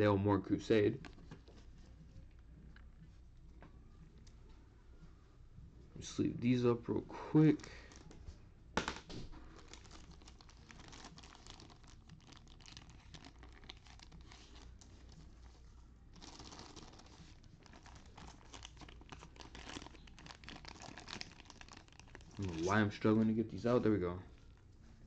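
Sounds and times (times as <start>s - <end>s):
plastic sleeves crinkling: 9.4s - 24.9s.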